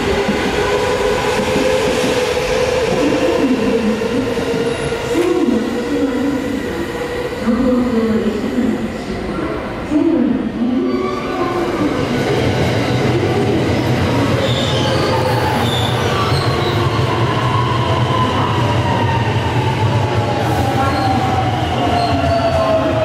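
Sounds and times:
train wheels rumbling on rails: 0:00.0 - 0:09.6.

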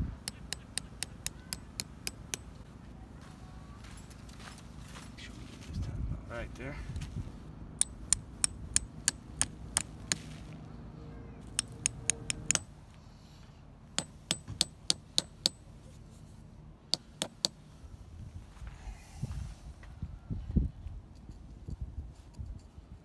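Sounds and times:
hammer striking metal stakes: 0:00.2 - 0:02.6, 0:07.8 - 0:10.3, 0:11.5 - 0:12.8, 0:13.9 - 0:15.7, 0:16.9 - 0:17.6.

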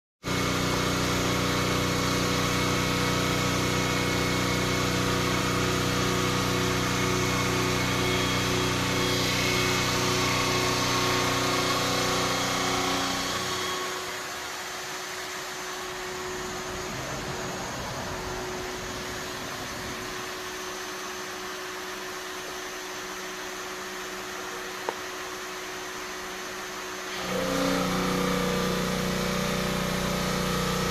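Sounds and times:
stone saw machine hum: 0:00.3 - 0:30.9.

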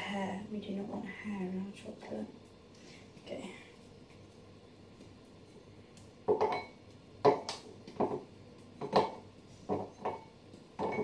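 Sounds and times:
chocolate clinking in glass bowl: 0:09.8 - 0:11.0.

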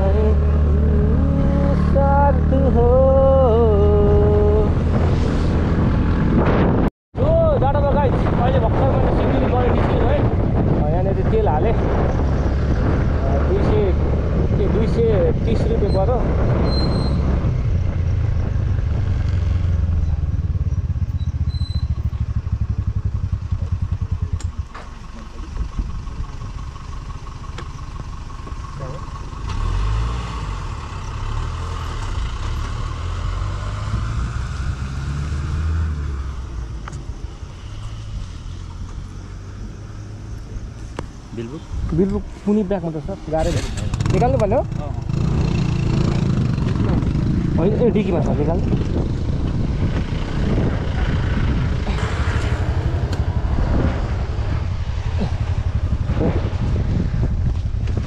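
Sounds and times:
motorcycle engine idling: 0:19.6 - 0:29.4.

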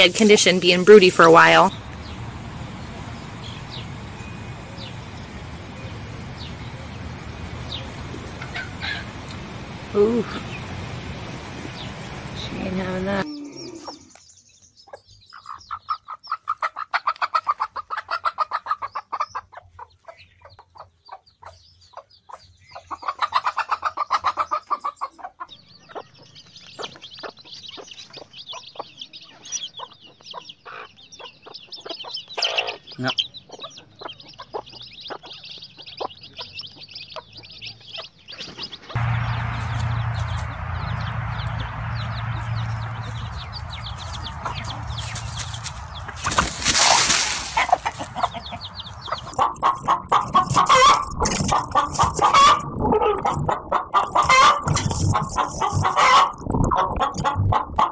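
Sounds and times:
hen clucking: 0:00.0 - 0:14.2, 0:14.9 - 0:57.9
chicks peeping: 0:00.1 - 0:57.9.

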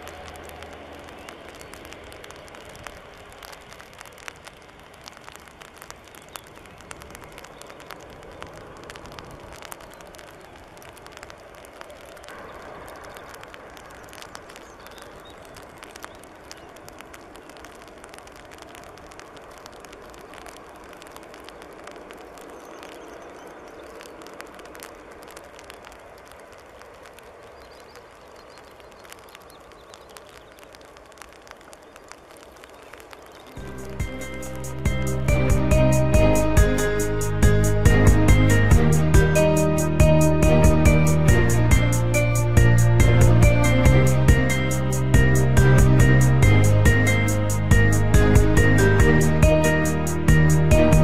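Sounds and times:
small crackles: 0:00.0 - 0:37.3
distant jet engine rushing: 0:33.1 - 0:51.0.

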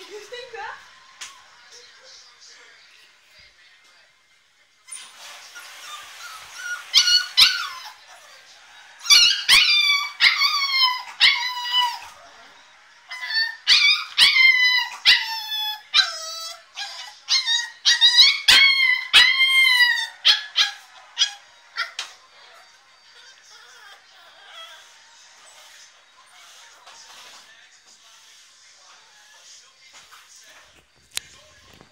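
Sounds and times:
puppy yelping high-pitched: 0:04.9 - 0:08.0, 0:09.0 - 0:12.1, 0:13.1 - 0:22.0.

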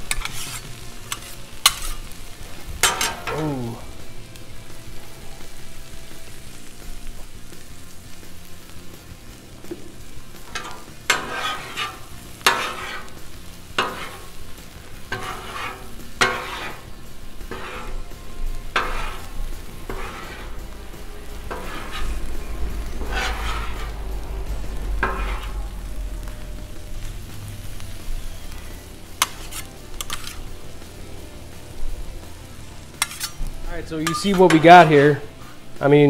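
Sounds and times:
metal spatulas scraping griddle: 0:00.0 - 0:02.2, 0:02.8 - 0:03.7, 0:10.3 - 0:24.2, 0:24.8 - 0:26.4, 0:28.4 - 0:30.6, 0:32.9 - 0:35.6
sizzle of frying: 0:00.0 - 0:36.0.

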